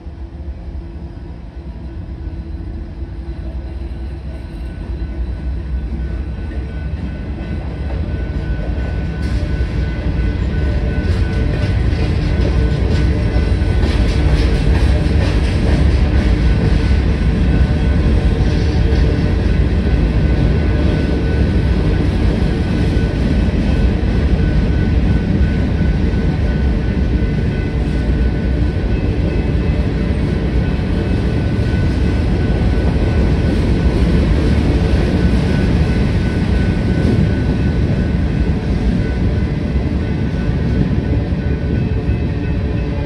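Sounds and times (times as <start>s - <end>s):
freight train wheels rumbling: 0.0s - 43.0s.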